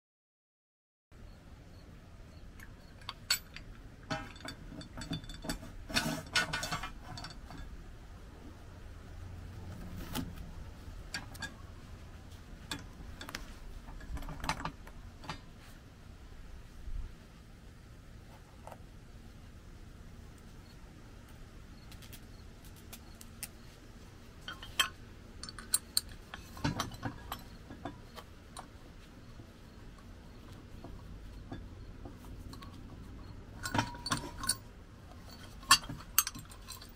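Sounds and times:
metal mount clicking and rattling: 2.6s - 7.8s, 10.1s - 11.6s, 12.3s - 15.6s, 24.4s - 36.9s.

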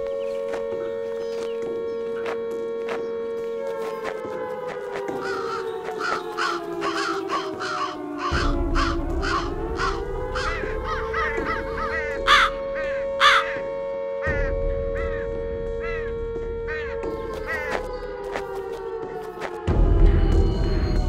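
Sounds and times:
crow-like cawing calls: 3.9s - 18.9s
droning tone: 8.3s - 21.0s.

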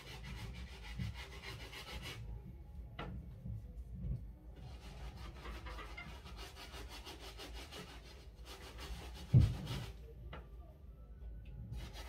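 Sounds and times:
brush scrubbing a sneaker: 0.0s - 2.2s, 4.7s - 10.0s.

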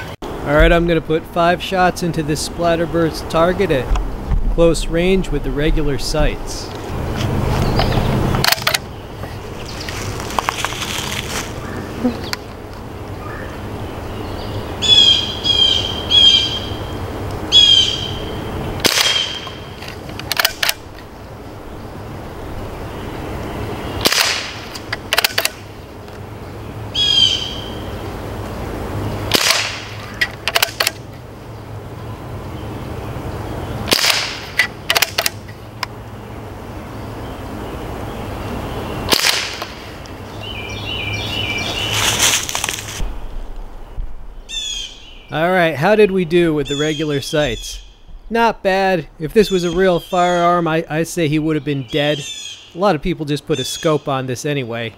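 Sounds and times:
bird harsh calls: 7.4s - 19.9s, 25.6s - 30.5s, 31.4s - 42.5s, 43.2s - 45.4s, 46.5s - 48.4s, 49.1s - 50.6s, 51.3s - 52.9s, 53.5s - 54.0s
quick clicks: 7.8s - 8.9s, 18.8s - 20.9s, 24.0s - 25.6s, 29.3s - 31.1s, 33.9s - 35.9s
pellet rifle shot: 18.8s - 19.5s, 24.0s - 25.6s, 29.3s - 31.0s, 33.8s - 35.4s, 39.1s - 39.8s
sharp crack: 18.8s - 21.0s, 24.0s - 25.7s, 29.3s - 31.1s, 33.8s - 35.9s, 39.1s - 40.2s.

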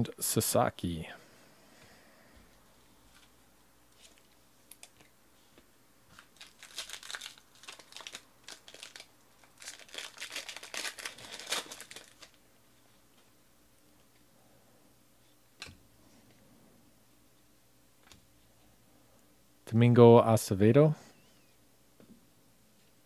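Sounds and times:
foil wrapper crinkling: 6.1s - 12.4s.

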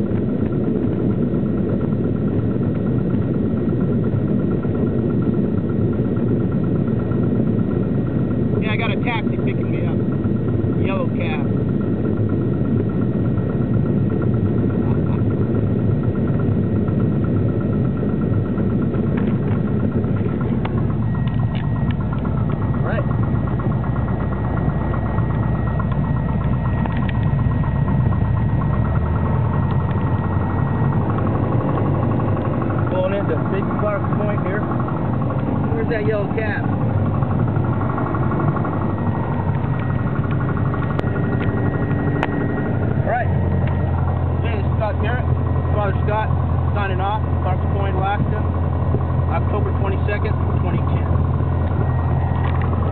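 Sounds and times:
light aircraft engine droning: 0.0s - 52.9s
sharp clicks: 25.3s - 27.4s.

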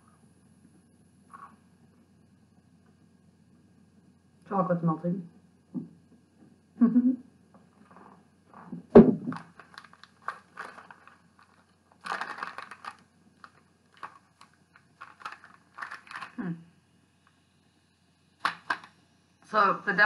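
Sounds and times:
chocolate wrapper crinkling: 9.3s - 16.4s.

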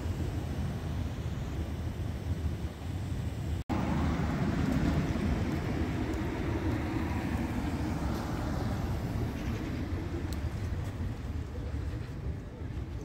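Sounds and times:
street traffic rumble: 0.0s - 13.0s.

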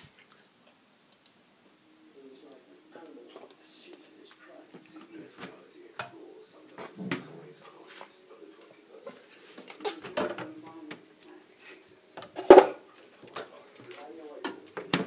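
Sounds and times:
kitchen clatter: 9.1s - 10.5s, 12.2s - 13.5s.

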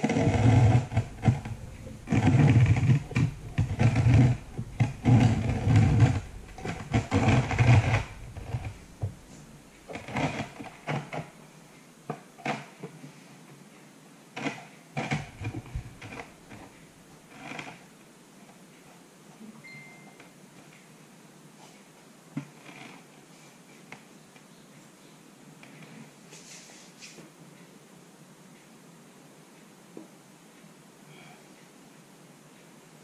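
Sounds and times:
buzzy rasping bursts: 0.0s - 9.0s
tiles knocking and scraping: 0.0s - 9.2s.

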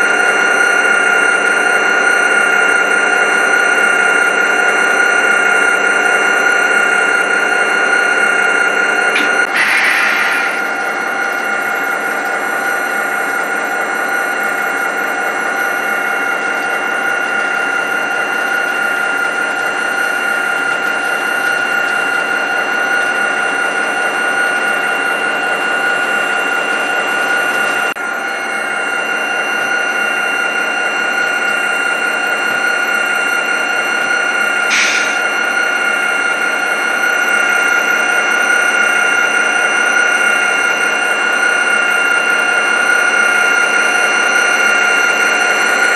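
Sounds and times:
model locomotive whine: 0.0s - 45.9s
high squeal: 9.2s - 12.8s, 24.3s - 37.4s.

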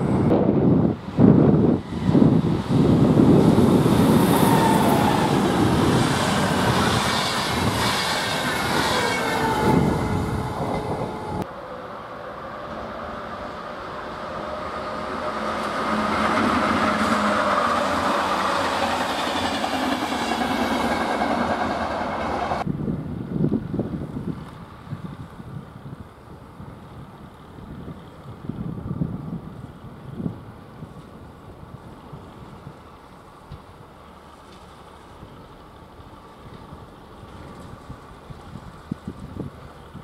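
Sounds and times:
distant train hum: 0.0s - 22.8s
train wheel squeals: 4.2s - 11.4s
train wheels clattering on track: 15.0s - 22.7s.

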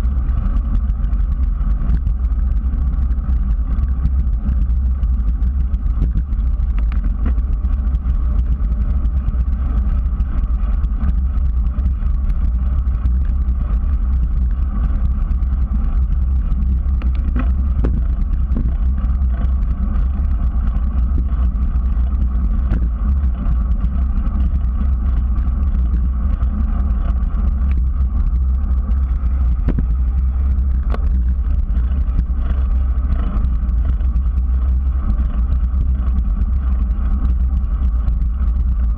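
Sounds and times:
wind buffeting: 0.0s - 35.9s
bicycle tyres on pavement: 0.0s - 38.9s
faint tick: 0.3s - 7.7s, 16.5s - 19.6s.

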